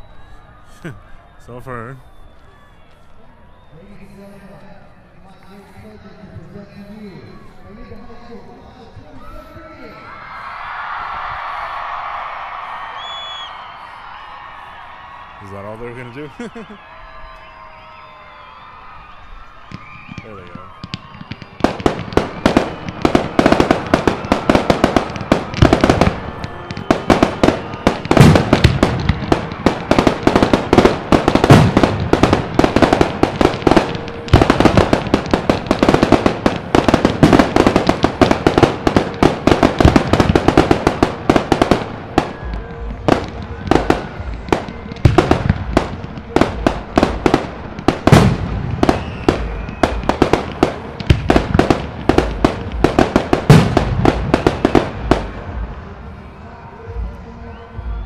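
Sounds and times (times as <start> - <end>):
fireworks bangs and crackles: 17.5 - 56.2.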